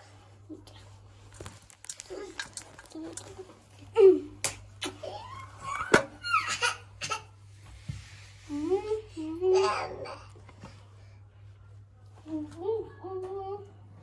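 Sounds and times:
girl laughing and squealing: 4.9s - 6.6s.

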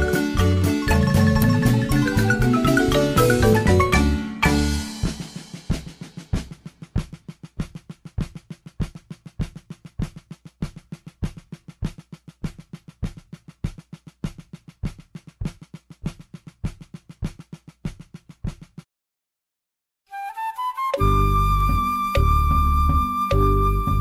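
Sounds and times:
bass drum beat: 0.0s - 18.8s, 21.0s - 24.0s
snare drum strokes and rolls: 0.0s - 18.9s.

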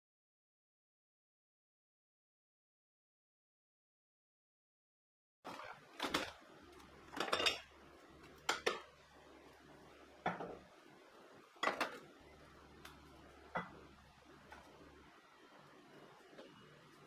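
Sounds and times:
glass bottles clinking: 7.2s - 7.7s.

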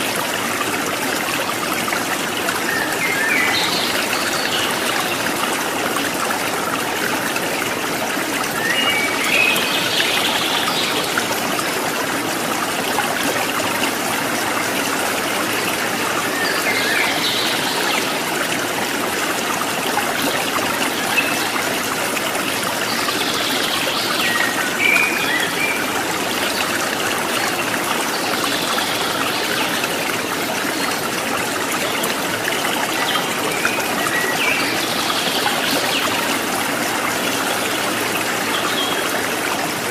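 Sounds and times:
babbling stream: 0.0s - 39.9s
water trickling: 0.0s - 39.9s.

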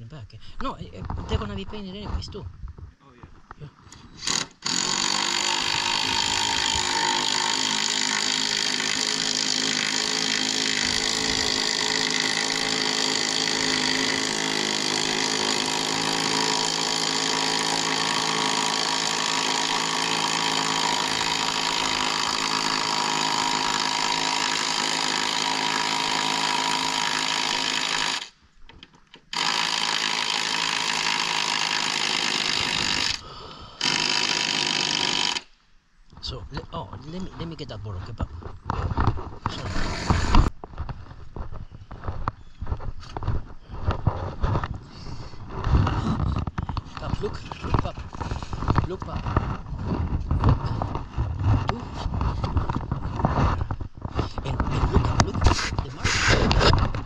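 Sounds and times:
power tool motor running: 4.2s - 28.3s, 29.3s - 33.2s, 33.8s - 35.5s, 39.5s - 40.5s.

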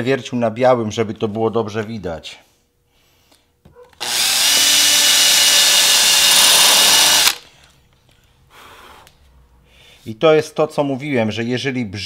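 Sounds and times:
power drill boring into wood: 4.0s - 7.4s.

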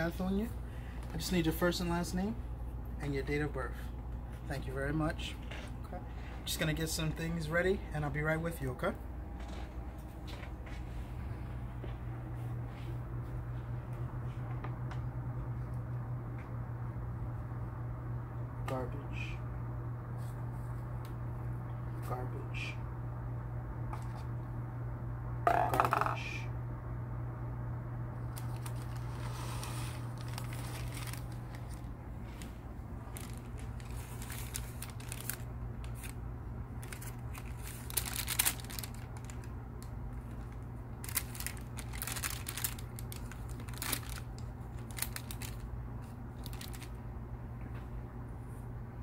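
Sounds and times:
low hum: 8.9s - 49.0s
plastic cup clattering in tray: 25.5s - 26.2s
packaging rustling and crinkling: 28.2s - 36.2s, 36.8s - 39.6s, 40.2s - 47.0s.

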